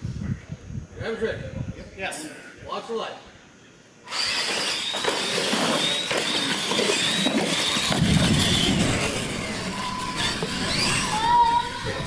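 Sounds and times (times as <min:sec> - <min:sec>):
toy truck motors whining: 0:04.0 - 0:12.0.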